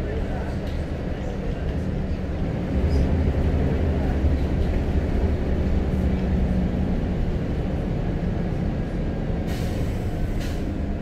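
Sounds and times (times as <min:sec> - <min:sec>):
bus diesel engine drone: 0:00.0 - 0:11.0
short air hisses: 0:09.5 - 0:10.7.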